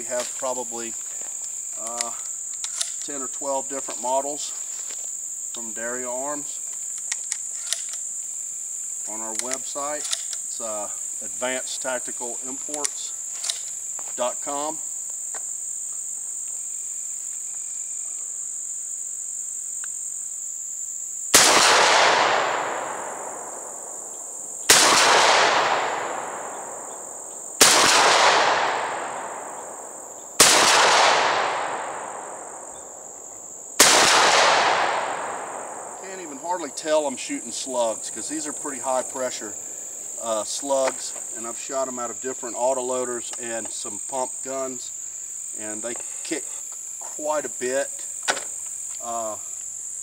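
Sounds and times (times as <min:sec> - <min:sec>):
shotgun shots echoing: 0:21.4 - 0:33.1, 0:33.8 - 0:38.2.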